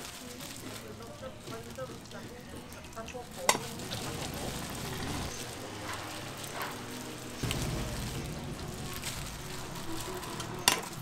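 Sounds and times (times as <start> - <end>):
pancakes sizzling in oil: 0.0 - 11.0.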